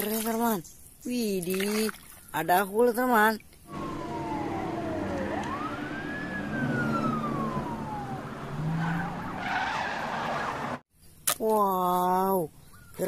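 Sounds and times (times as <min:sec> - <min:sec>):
police siren wailing: 0:03.7 - 0:10.8
traffic and car engines: 0:03.7 - 0:10.8.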